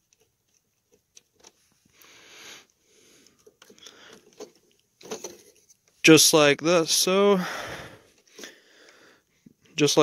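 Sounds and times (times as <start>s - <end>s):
short breath: 1.9s - 4.3s, 7.4s - 9.4s.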